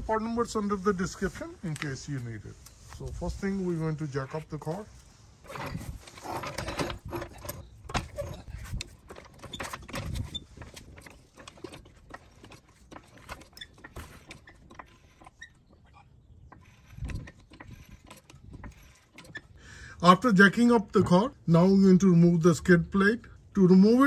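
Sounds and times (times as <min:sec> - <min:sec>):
floor jack clicks and knocks: 0:05.5 - 0:15.4.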